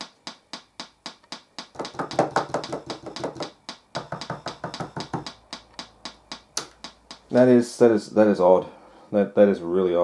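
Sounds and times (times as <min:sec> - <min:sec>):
amplifier clicking through speaker: 0:00.0 - 0:07.4.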